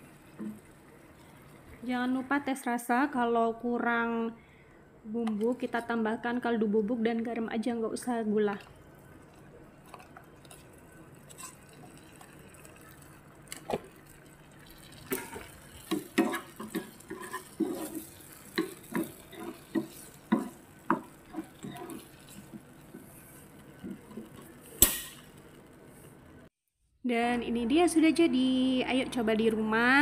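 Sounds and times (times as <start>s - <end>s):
spatula knocking and scraping pan: 15.1s - 25.0s.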